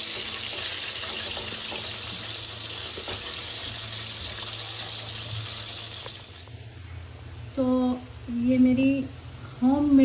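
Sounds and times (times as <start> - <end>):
chicken deep-frying in oil: 0.0 - 6.6.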